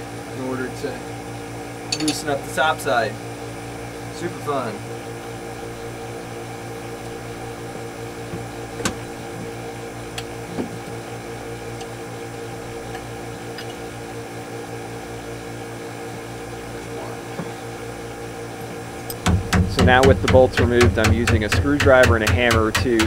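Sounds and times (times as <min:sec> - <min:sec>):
machinery hum: 0:00.0 - 0:23.0
metal tools clinking on bolts: 0:01.9 - 0:02.3.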